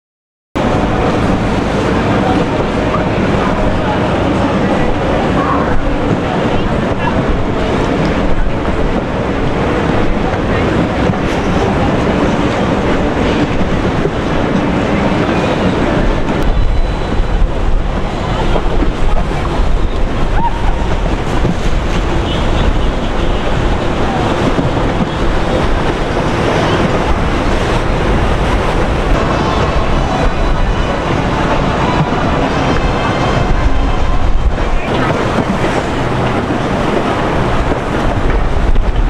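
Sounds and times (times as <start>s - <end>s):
wind and water rushing: 0.6s - 39.0s.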